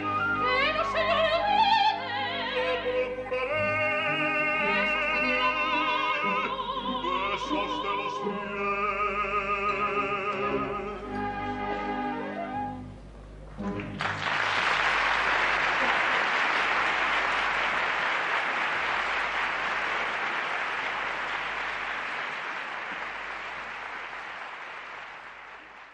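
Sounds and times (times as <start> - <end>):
audience applauding: 13.5 - 25.9.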